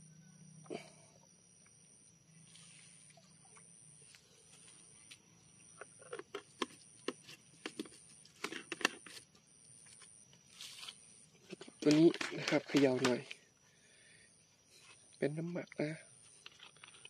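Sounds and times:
plastic bottles being handled: 5.8s - 9.3s, 10.6s - 13.4s.

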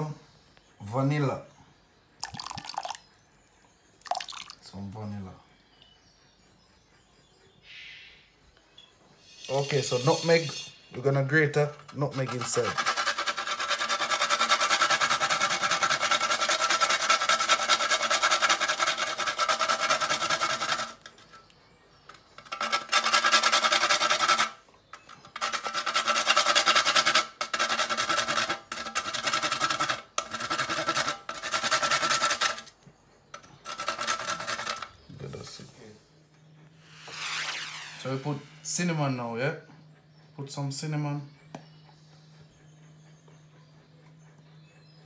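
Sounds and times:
nutmeg rasping on a metal grater: 9.5s - 21.5s, 22.2s - 32.7s, 33.3s - 35.6s.

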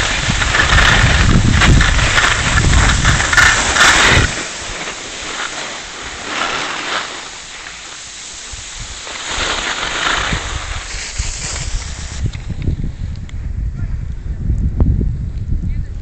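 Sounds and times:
wind buffeting microphone: 0.0s - 6.4s, 8.3s - 16.0s
skis sliding on packed snow: 0.0s - 12.8s.

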